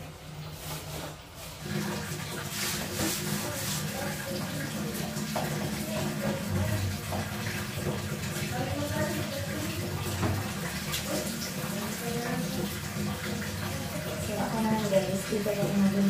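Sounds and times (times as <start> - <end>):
water splashing: 0.0 - 16.0
tiles being scrubbed: 0.2 - 16.0.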